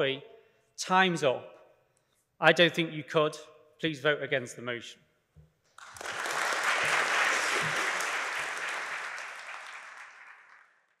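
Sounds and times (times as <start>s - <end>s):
audience applauding: 5.8s - 10.8s.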